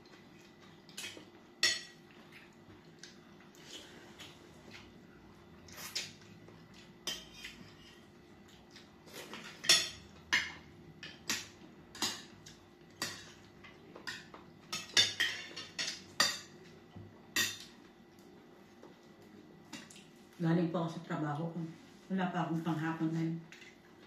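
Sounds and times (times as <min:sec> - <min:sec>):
cutlery clinking on glass plates: 0:14.0 - 0:16.5.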